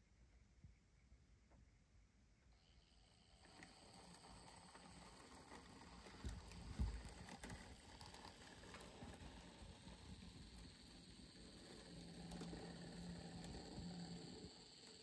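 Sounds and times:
model locomotive motor whirring: 2.6s - 15.0s.

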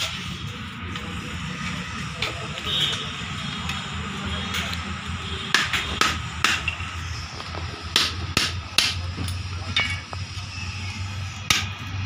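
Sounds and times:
hammer striking metal: 5.5s - 6.8s, 7.9s - 10.1s, 11.4s - 11.8s.

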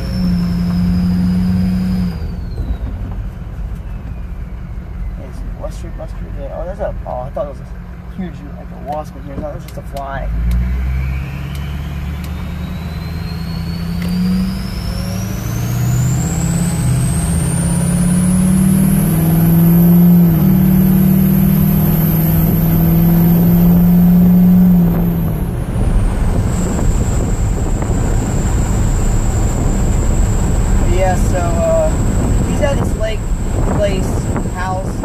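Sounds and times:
high turbo whistle: 0.0s - 3.1s, 10.7s - 31.2s
diesel engine accelerating: 0.0s - 35.0s.

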